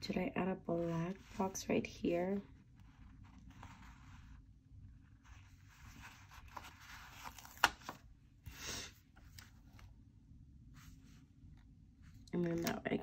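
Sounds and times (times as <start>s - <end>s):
paper rustling: 0.8s - 8.1s.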